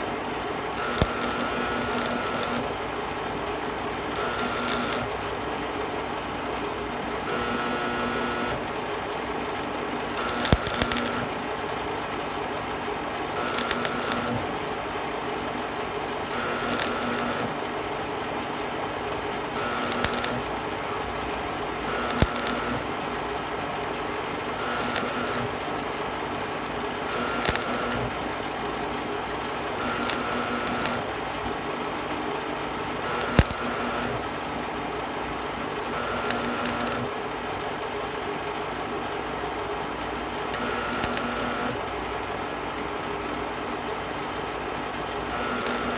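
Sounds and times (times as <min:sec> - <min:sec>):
welding arc crackling: 0:00.0 - 0:08.7, 0:10.0 - 0:11.5, 0:13.2 - 0:17.8, 0:18.4 - 0:37.4, 0:40.0 - 0:42.2, 0:45.1 - 0:45.9
sharp pops of welding arc: 0:00.8 - 0:02.7, 0:04.2 - 0:05.1, 0:10.2 - 0:11.3, 0:13.4 - 0:14.5, 0:16.3 - 0:17.6, 0:19.6 - 0:20.5, 0:21.9 - 0:22.9, 0:24.6 - 0:25.6, 0:27.1 - 0:28.2, 0:29.8 - 0:31.1, 0:33.1 - 0:34.3, 0:36.1 - 0:37.1, 0:40.5 - 0:41.8, 0:45.4 - 0:45.9.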